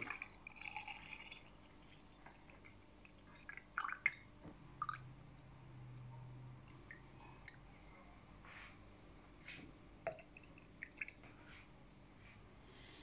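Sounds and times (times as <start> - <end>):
juice pouring over ice: 0.0 - 4.2.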